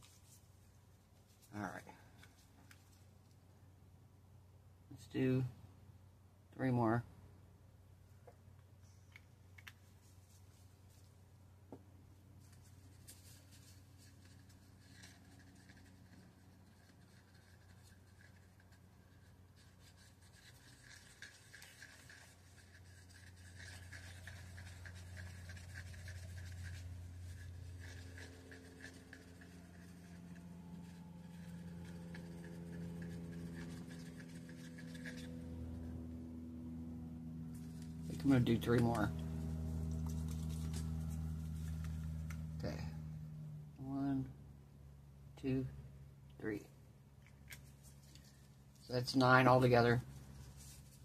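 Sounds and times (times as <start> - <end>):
low steady hum: 0.0 - 51.0
stir stick scraping mixing cup: 12.4 - 36.1, 37.5 - 42.6.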